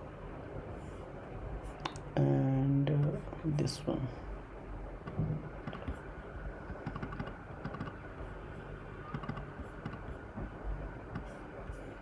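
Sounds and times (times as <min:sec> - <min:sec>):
low steady hum: 0:00.0 - 0:12.0
keyboard clicks: 0:05.1 - 0:06.0, 0:06.7 - 0:08.0, 0:09.1 - 0:10.1.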